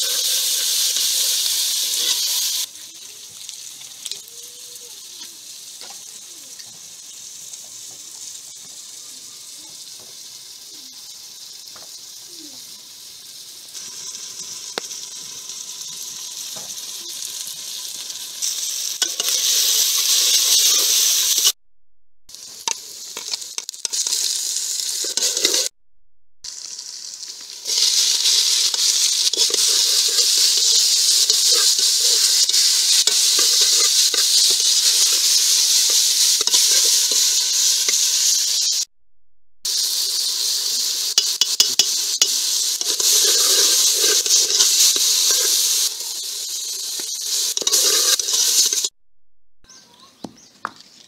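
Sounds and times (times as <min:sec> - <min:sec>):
onions and tomatoes sizzling: 0:00.0 - 0:21.6, 0:22.3 - 0:25.8, 0:26.4 - 0:38.9, 0:39.6 - 0:49.0
metal ladle scraping pot: 0:42.8 - 0:45.8, 0:47.0 - 0:48.9.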